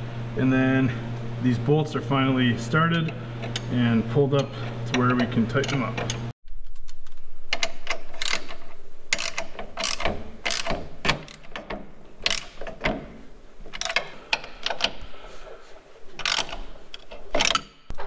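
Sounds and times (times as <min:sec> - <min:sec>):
sharp metal clicks: 0:04.9 - 0:13.0, 0:16.2 - 0:17.9
socket ratchet wrench clicking: 0:07.5 - 0:12.8.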